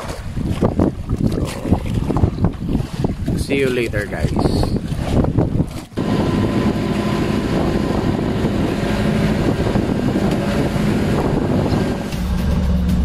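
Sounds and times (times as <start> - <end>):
boat engine running: 0.0 - 13.0
water splashing along hull: 0.0 - 13.0.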